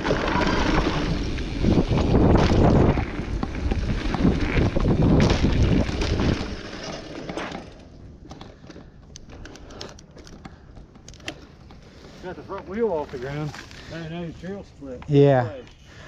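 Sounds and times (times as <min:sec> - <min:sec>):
wind rushing over microphone: 0:00.0 - 0:06.6
bike tyre noise on trail: 0:00.0 - 0:16.0.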